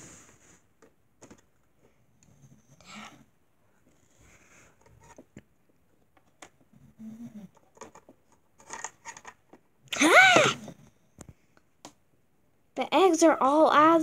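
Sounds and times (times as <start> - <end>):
plastic toys clicking and scraping: 7.5 - 9.6.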